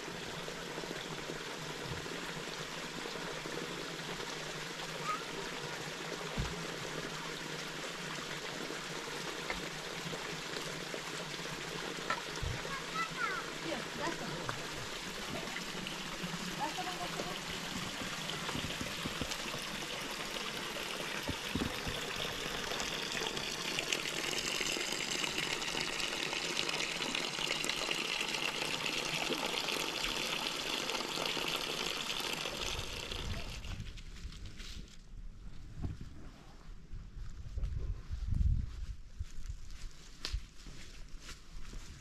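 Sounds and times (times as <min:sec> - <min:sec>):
water running: 0:00.7 - 0:33.8
wind rumble on microphone: 0:33.1 - 0:40.4.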